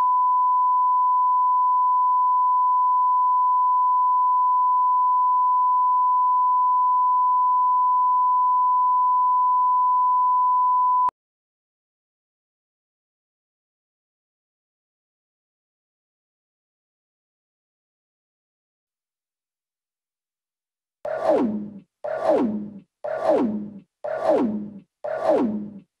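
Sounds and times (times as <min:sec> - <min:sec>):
steady sine tone: 0:00.0 - 0:11.1.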